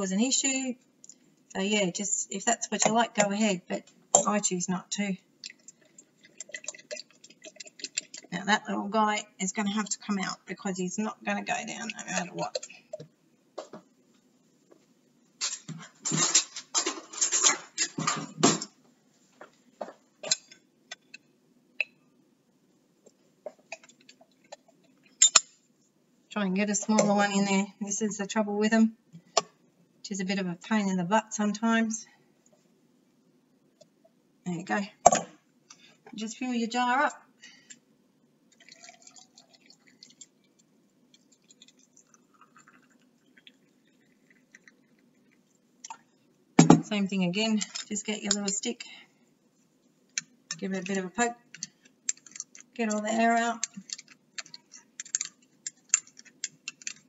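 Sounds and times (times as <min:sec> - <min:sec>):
hot water poured into a jar: 0:38.6 - 0:40.4, 0:41.2 - 0:45.1.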